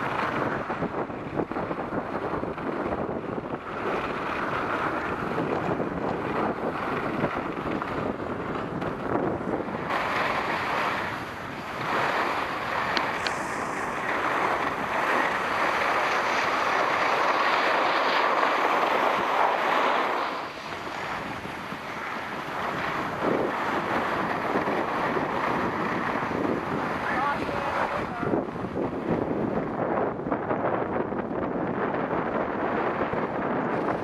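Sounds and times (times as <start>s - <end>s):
wind buffeting microphone: 0.0s - 34.0s
skis hissing over snow: 9.9s - 26.4s.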